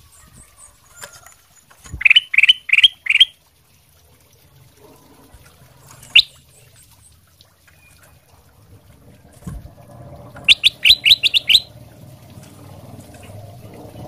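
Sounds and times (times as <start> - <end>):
bird chirping: 1.6 - 3.3, 10.4 - 11.7
upward-sweeping bird call: 2.0 - 3.3, 10.4 - 11.7.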